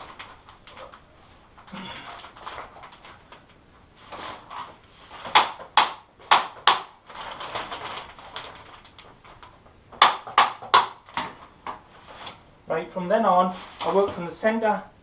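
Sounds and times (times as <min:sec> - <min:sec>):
plastic sheeting rustling: 0:00.0 - 0:09.6, 0:13.4 - 0:14.3.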